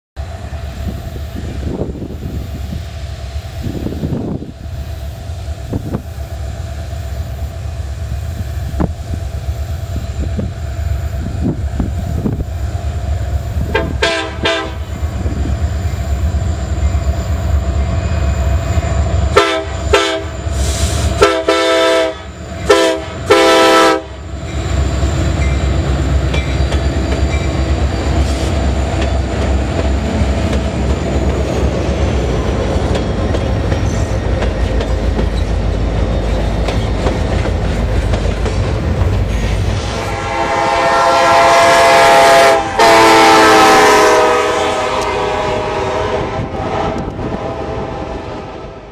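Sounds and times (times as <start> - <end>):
freight train rumbling: 0.2 - 48.9
locomotive horn blasts: 13.7 - 15.0, 19.3 - 24.2, 39.8 - 48.9.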